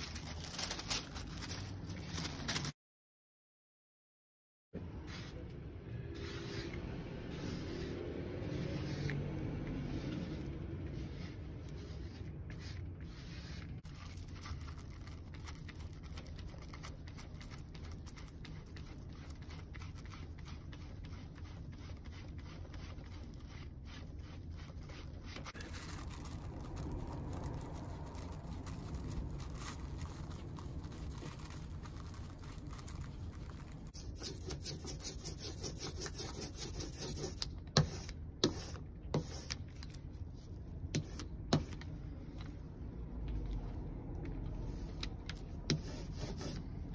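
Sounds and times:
rag wiping: 6.1s - 13.8s
rubber roller rolling: 6.1s - 13.9s.

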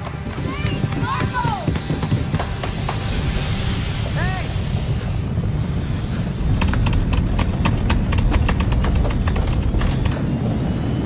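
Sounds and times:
people running on hard floor: 0.0s - 3.5s
deep rumble with rising whine: 1.3s - 11.0s.

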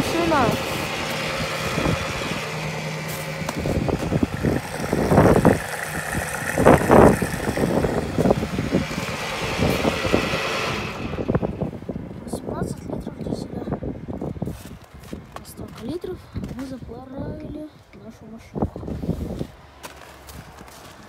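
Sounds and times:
fuel pump humming: 0.0s - 12.1s
fuel rushing: 0.0s - 12.1s.

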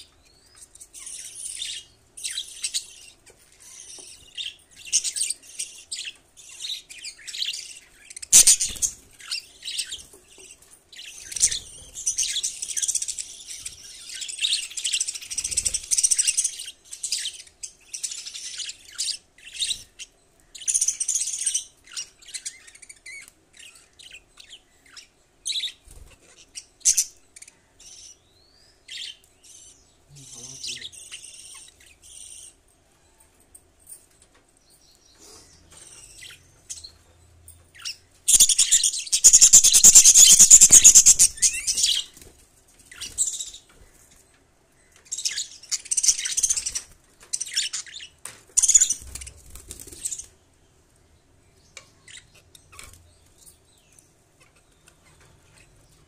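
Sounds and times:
budgerigars chirping: 0.3s - 28.3s, 37.8s - 42.2s, 45.0s - 50.3s.

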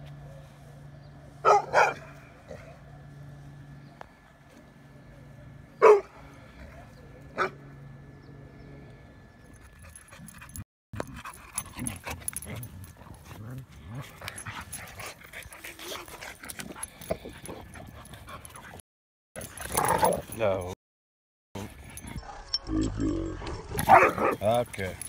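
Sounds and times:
sharp dog bark: 23.9s - 24.4s.

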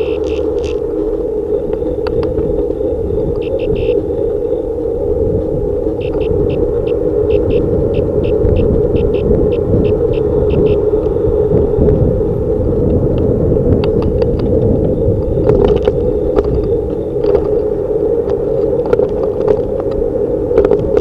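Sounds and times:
road rumble: 0.0s - 21.0s
wind: 0.0s - 21.0s
bicycle clicks and rattles: 12.8s - 21.0s.

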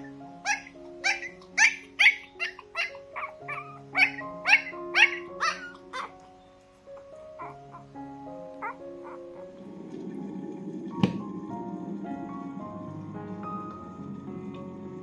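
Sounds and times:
puppy crying: 0.0s - 6.3s, 7.0s - 9.5s
background music: 0.0s - 15.0s.

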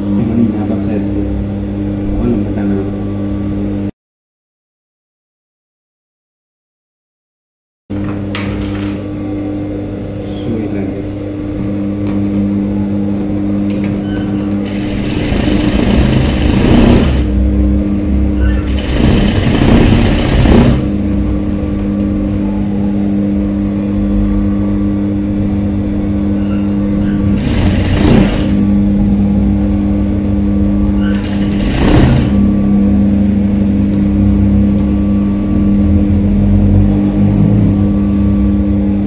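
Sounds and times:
sewing machine stitching fast: 14.6s - 17.3s, 18.7s - 21.0s, 27.2s - 28.7s, 31.1s - 32.4s
sewing machine motor humming: 14.6s - 17.4s, 18.6s - 21.0s, 27.2s - 28.8s, 31.1s - 32.5s.

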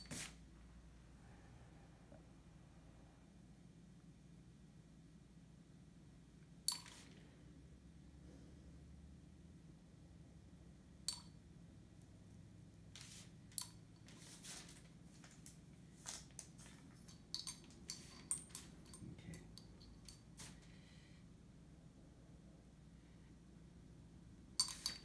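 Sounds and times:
faint low hum: 0.0s - 25.0s
metal stylus tapping glass jars: 6.7s - 7.0s, 11.1s - 11.4s, 17.1s - 20.3s, 24.6s - 25.0s.

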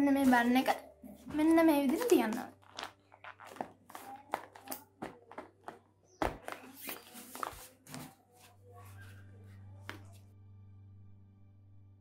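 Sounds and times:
paper rustling and crinkling: 1.9s - 9.2s
low steady hum: 8.9s - 12.0s.

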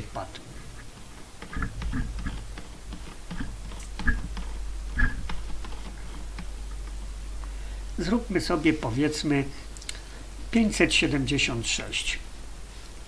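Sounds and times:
low steady hum: 0.0s - 13.0s
stylus tapping on pen tablet: 1.4s - 5.9s.

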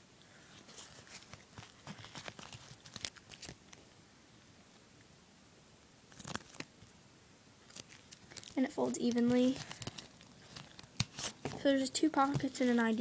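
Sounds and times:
wallet rustling: 0.5s - 3.8s, 6.1s - 6.7s, 7.6s - 13.0s.

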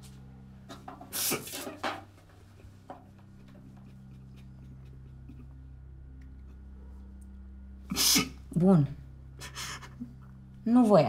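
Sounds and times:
low steady hum: 0.0s - 11.0s
sniffing sobs: 9.4s - 10.2s.

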